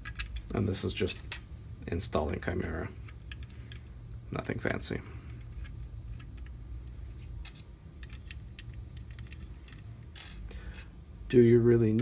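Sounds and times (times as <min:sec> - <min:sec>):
small clicks and taps of parts: 0:00.0 - 0:01.5, 0:02.2 - 0:03.9, 0:04.6 - 0:10.9
low steady hum: 0:00.0 - 0:12.0.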